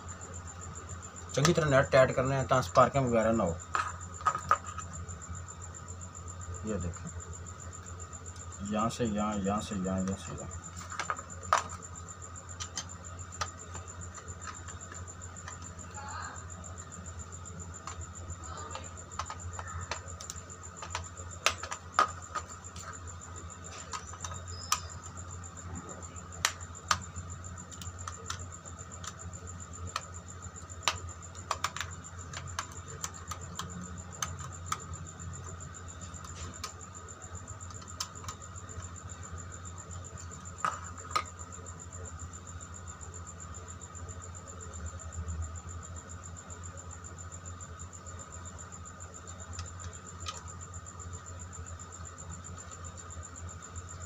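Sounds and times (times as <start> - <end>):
steady low hum: 0.0 - 54.0
screwdriver clicks and taps on plastic: 19.1 - 22.5, 30.8 - 34.9.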